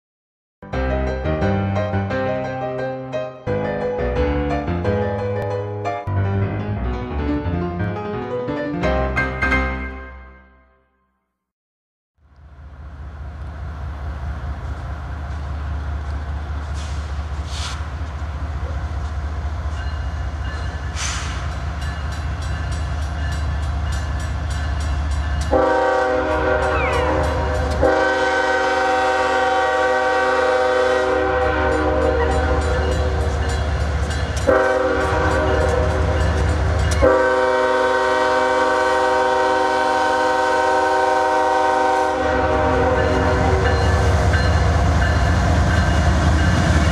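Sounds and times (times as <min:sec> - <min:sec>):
diesel locomotive engines rumbling: 0:12.2 - 0:46.9
train air horn blasts: 0:25.5 - 0:33.3, 0:34.4 - 0:36.4, 0:37.0 - 0:44.0.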